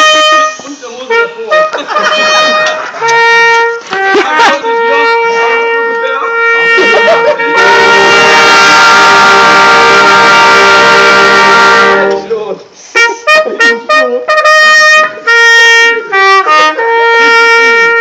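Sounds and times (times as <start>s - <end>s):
brass band playing: 0.0s - 18.0s.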